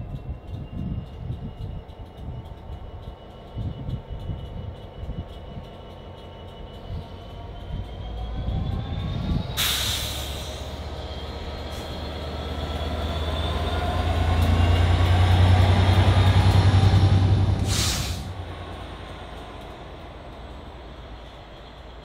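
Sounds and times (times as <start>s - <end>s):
locomotive engine drone: 0.0s - 22.0s
hiss burst: 17.6s - 18.3s.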